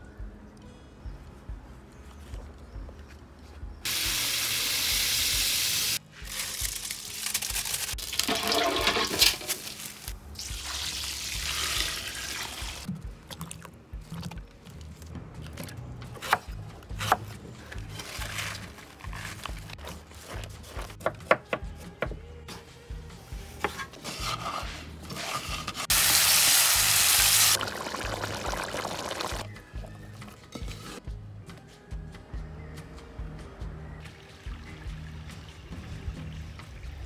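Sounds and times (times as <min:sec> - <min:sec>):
loud steady hiss: 0:03.9 - 0:06.0, 0:25.9 - 0:27.6
coconut milk pouring and splashing: 0:06.3 - 0:14.4, 0:25.9 - 0:29.5.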